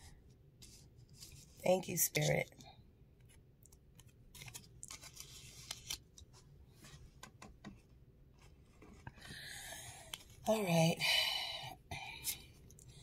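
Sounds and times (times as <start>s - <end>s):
cards clicking and rustling: 3.2s - 6.4s.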